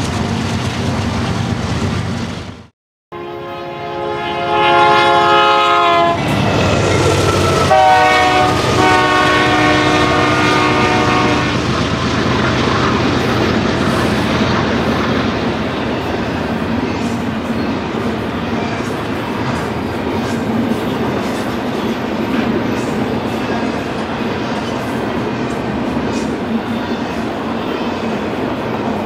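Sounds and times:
train wheels rumbling and clattering: 0:00.0 - 0:02.7, 0:06.1 - 0:29.0
locomotive air horn blasts: 0:03.1 - 0:06.2, 0:07.6 - 0:11.7.

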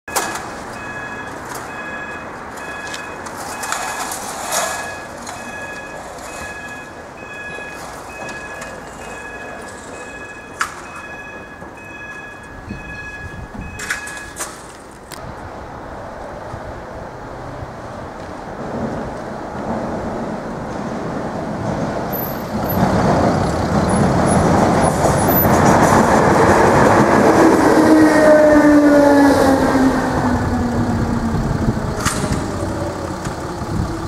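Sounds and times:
level crossing two-note alarm: 0:00.1 - 0:04.1, 0:04.8 - 0:14.4.

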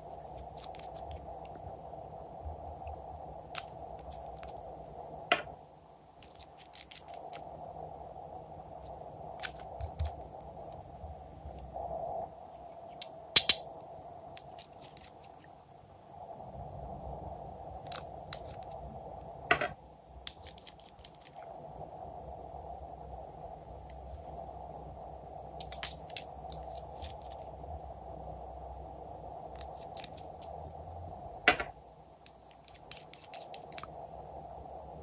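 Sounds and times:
faint steady hum: 0:00.0 - 0:35.0
loud plastic snap: 0:13.4 - 0:13.6
plastic toy pieces clicking: 0:13.4 - 0:13.6, 0:25.6 - 0:26.8.

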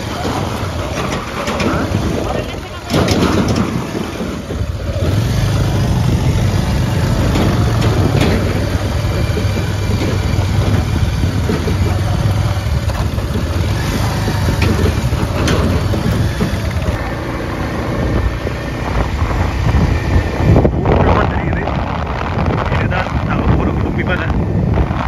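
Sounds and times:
rattling: 0:00.0 - 0:19.1
motorcycle engine running: 0:00.0 - 0:25.0.

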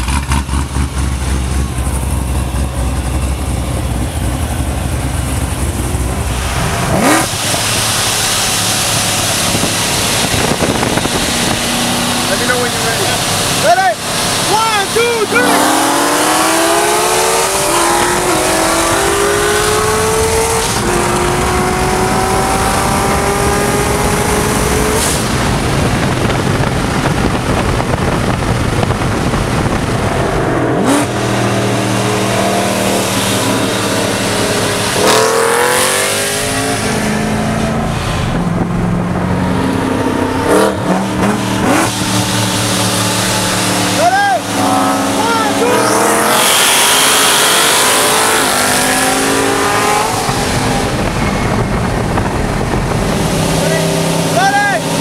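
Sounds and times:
car engines racing: 0:00.0 - 0:55.0
exhaust and wind noise: 0:00.0 - 0:55.0
engine revving blips: 0:30.4 - 0:38.4.

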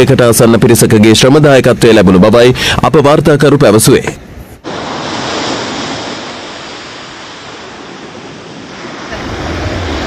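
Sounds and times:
wind: 0:00.0 - 0:10.0
sea surf rushing: 0:04.6 - 0:10.0.

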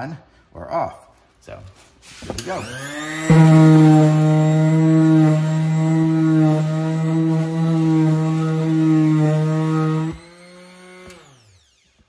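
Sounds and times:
electric sander buzzing: 0:02.4 - 0:11.8.

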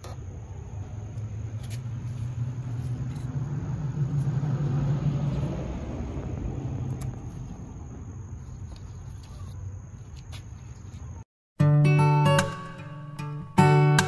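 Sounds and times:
vehicle passing by: 0:00.1 - 0:09.8.

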